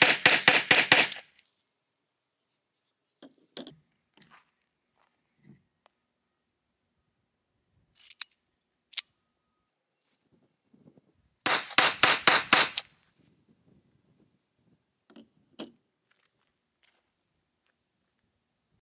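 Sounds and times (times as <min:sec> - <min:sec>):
pistol shots: 0:00.0 - 0:01.2, 0:11.5 - 0:12.8
metallic clicks of handling pistol: 0:01.0 - 0:02.0, 0:07.9 - 0:09.2.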